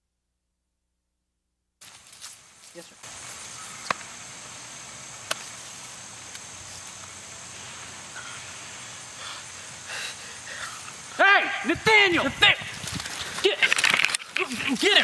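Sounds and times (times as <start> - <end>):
high-pitched insect chorus: 1.8 - 15.0
sharp click: 5.2 - 5.5.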